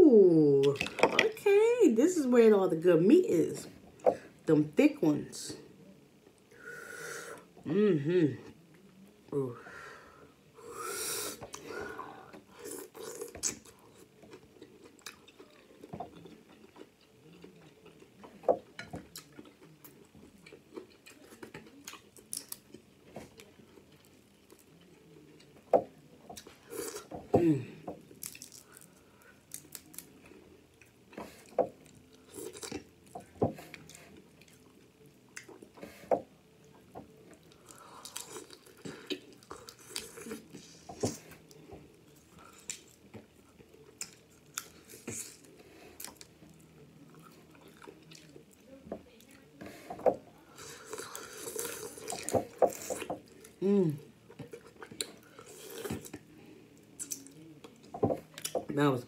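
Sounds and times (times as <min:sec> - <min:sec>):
wet chewing and lip-smacking: 0:12.6 - 0:22.8, 0:57.0 - 0:58.6.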